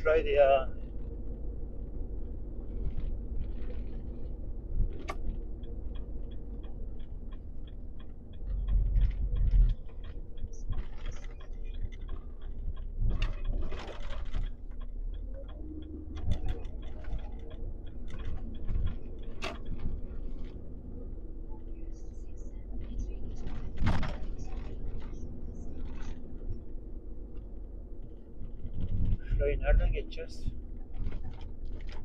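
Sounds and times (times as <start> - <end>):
diesel engine rumble: 0.0 - 32.0
turn signal ticking: 0.0 - 32.0.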